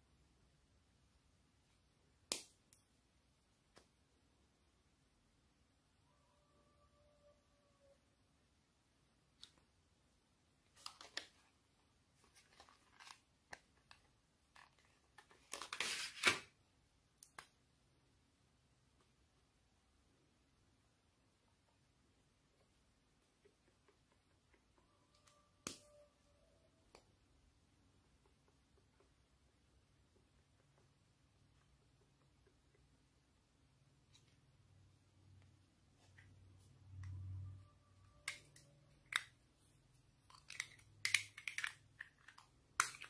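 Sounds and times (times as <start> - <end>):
plastic blister tray crinkling: 12.2 - 16.4.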